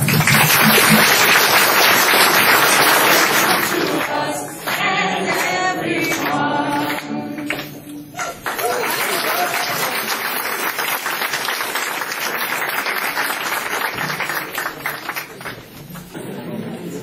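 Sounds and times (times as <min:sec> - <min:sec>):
audience applause: 0:00.0 - 0:07.6, 0:08.2 - 0:16.5
acoustic guitar: 0:00.0 - 0:08.4
group singing: 0:01.8 - 0:08.5.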